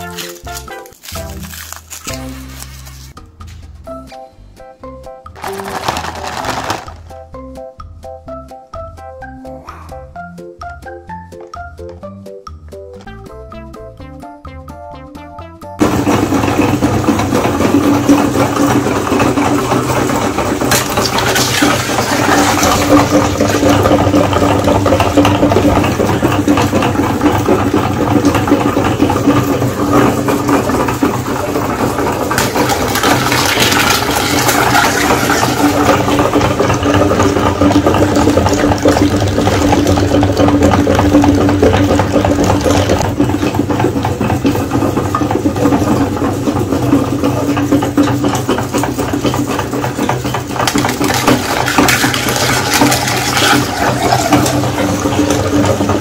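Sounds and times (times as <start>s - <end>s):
meat grinder humming: 5.4s - 7.3s, 15.8s - 56.0s
squelching grind of egg mush: 15.9s - 56.0s.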